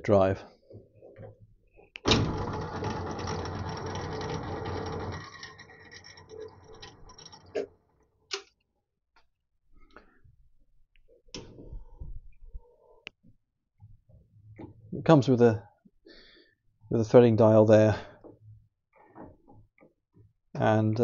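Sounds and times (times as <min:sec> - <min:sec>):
spindle winding down: 0:02.0 - 0:07.7
lathe gears and belt whirring: 0:02.1 - 0:07.6
metal parts knocking: 0:02.1 - 0:07.7.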